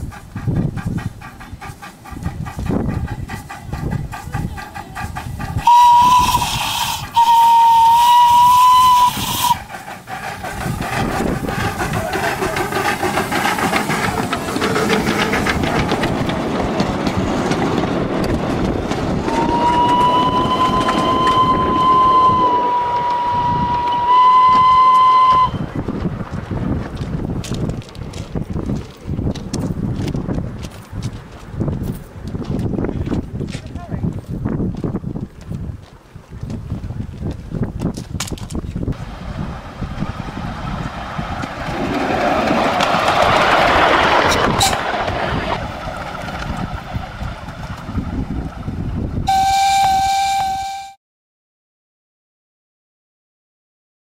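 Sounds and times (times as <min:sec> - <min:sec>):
train running along track: 0:00.0 - 0:51.0
train whistle blasts: 0:05.6 - 0:09.6, 0:19.3 - 0:25.7, 0:49.3 - 0:51.0.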